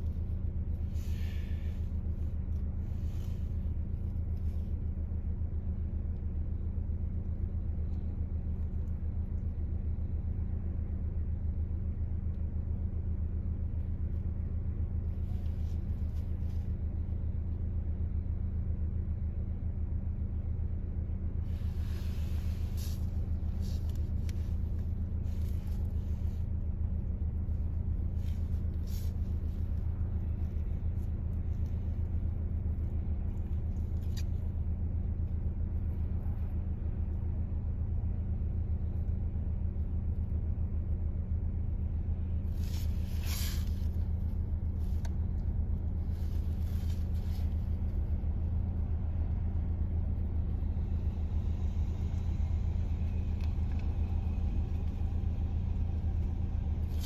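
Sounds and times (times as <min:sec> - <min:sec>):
engine drone inside car: 0:00.0 - 0:57.0.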